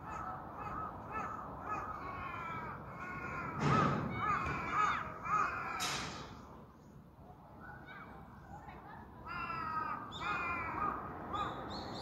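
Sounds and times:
crows cawing: 0.0s - 6.4s, 9.3s - 11.6s.

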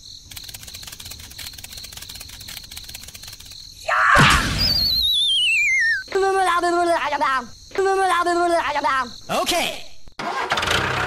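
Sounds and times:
warbling whistle gliding down: 4.6s - 6.0s
cartoon character wordless voice: 6.0s - 10.1s.

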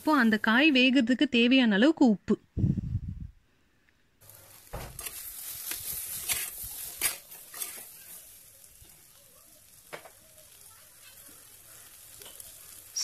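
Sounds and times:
vegetables sizzling in oil: 0.0s - 1.0s, 4.2s - 13.0s
metal spoon scraping pot: 5.0s - 8.1s.

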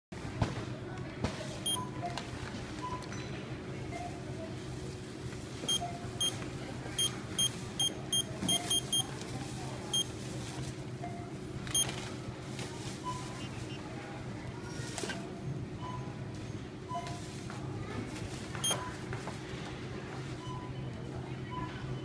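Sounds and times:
steady store hum: 0.2s - 22.0s
short high keypad beeps: 7.0s - 9.0s.

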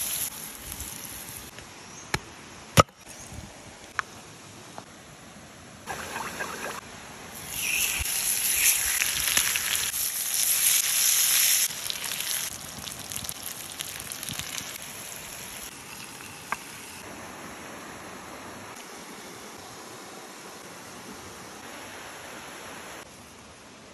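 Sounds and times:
fish sizzling on hot stone: 0.0s - 1.5s, 7.4s - 17.0s.

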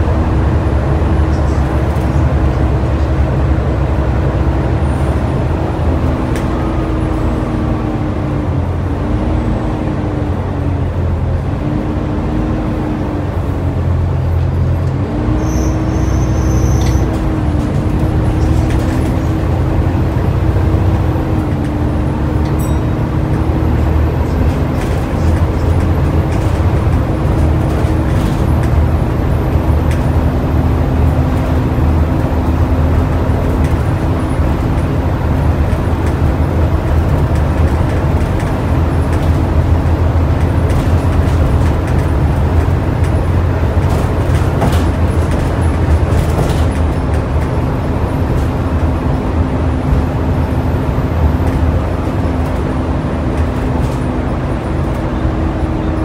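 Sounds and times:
bus diesel engine drone: 0.0s - 56.0s
interior rattles and clicks: 16.7s - 56.0s.

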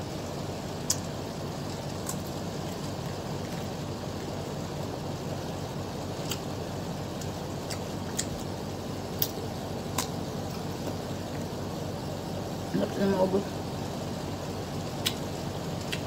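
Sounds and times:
eating clicks and smacks: 0.8s - 1.1s, 1.7s - 4.3s, 6.2s - 6.5s, 7.1s - 8.5s, 9.2s - 11.0s, 15.0s - 16.0s.

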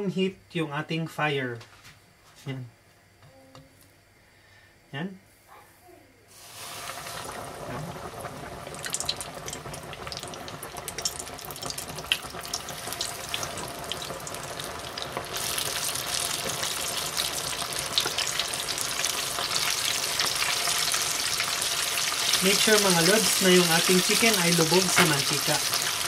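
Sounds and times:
chicken deep-frying in hot oil: 6.3s - 26.0s.

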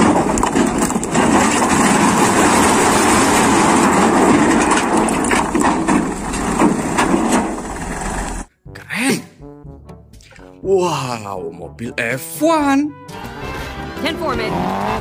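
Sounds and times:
rocks sliding and tumbling: 0.0s - 8.5s
truck engine running: 0.0s - 8.5s.

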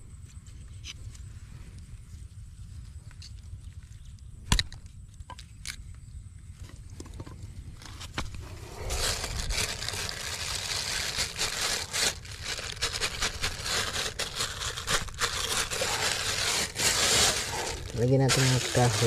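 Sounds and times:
wet mud scraping: 7.9s - 19.0s.

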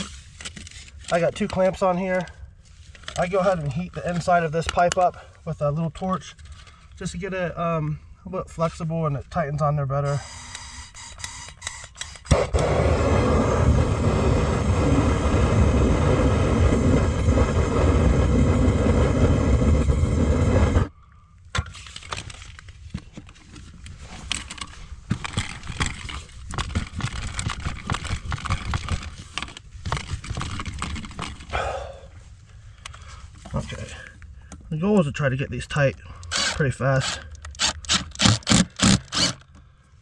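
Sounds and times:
clicks and scrapes of pipe: 0.0s - 5.2s, 21.5s - 31.5s
handheld torch burning: 12.3s - 20.9s.

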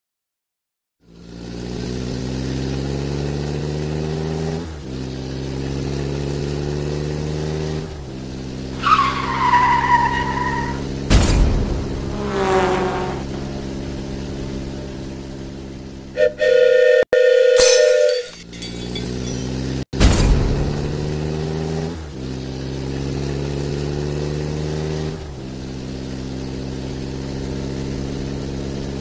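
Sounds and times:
loud horn blast: 12.0s - 13.4s, 16.2s - 18.0s.

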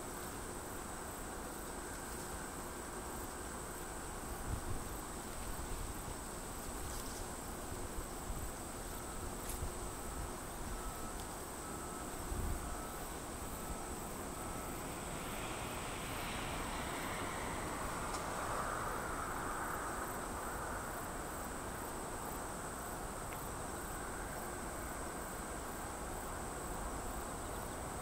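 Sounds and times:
insects chirring: 0.0s - 28.0s
jet engines rushing: 13.4s - 21.2s.

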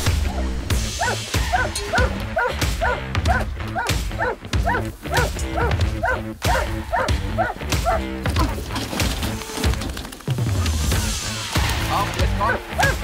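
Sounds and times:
background music with bass: 0.0s - 13.0s
dogs barking: 0.2s - 8.9s, 12.1s - 13.0s.

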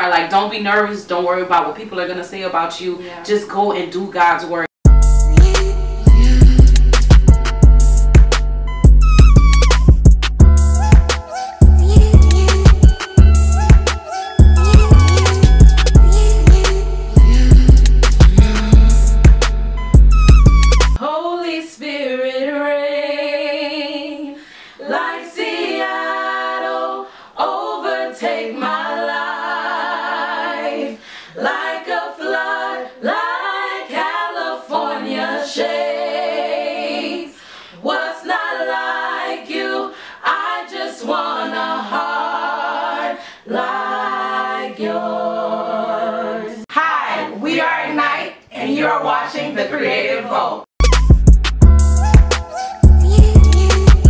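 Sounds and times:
vocal group singing a cappella: 5.2s - 7.4s, 11.1s - 19.5s, 20.9s - 50.7s, 52.5s - 54.0s.

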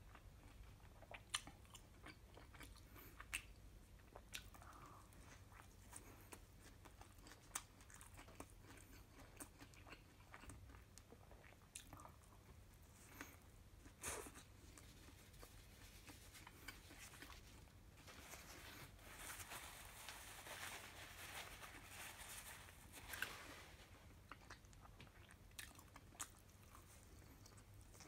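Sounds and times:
chewing and biting food: 0.1s - 17.7s, 24.1s - 28.0s.

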